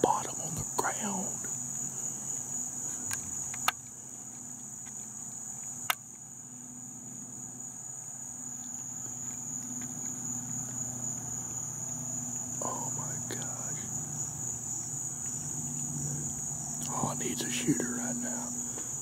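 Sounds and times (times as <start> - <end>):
crickets chirping: 0.0 - 19.0
low steady hum: 0.0 - 19.0
sharp clicks: 3.0 - 3.9.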